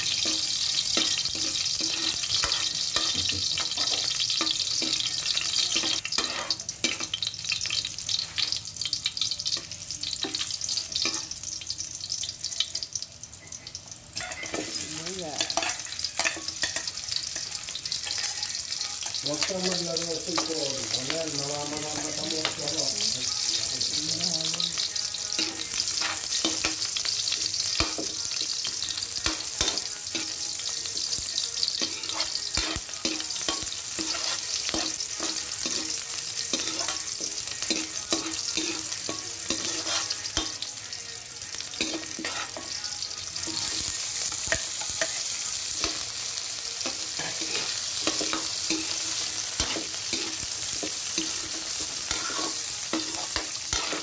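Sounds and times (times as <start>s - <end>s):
metal spatula scraping wok: 0.0s - 7.2s, 31.8s - 40.6s, 41.8s - 42.8s, 46.8s - 54.0s
food sizzling in hot oil: 0.0s - 54.0s.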